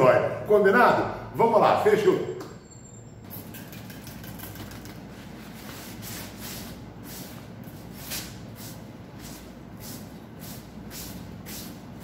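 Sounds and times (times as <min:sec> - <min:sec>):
steady low hum: 0:02.6 - 0:12.0.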